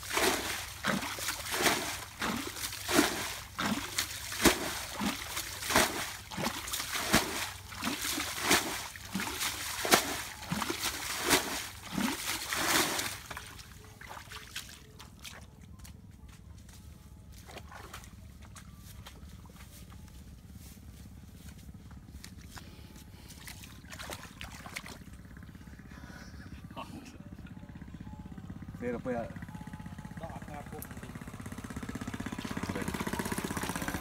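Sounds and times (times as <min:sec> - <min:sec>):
wet scraping and splashing: 0:00.0 - 0:15.5, 0:23.2 - 0:25.1.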